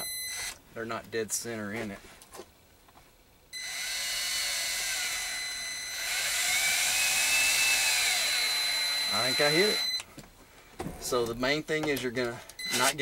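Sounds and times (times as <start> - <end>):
cordless drill driving a screw: 3.6 - 10.0.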